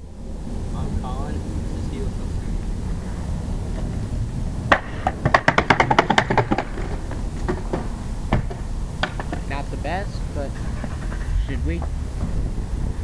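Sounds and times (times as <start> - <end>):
longboard clattering down steps: 4.7 - 9.7.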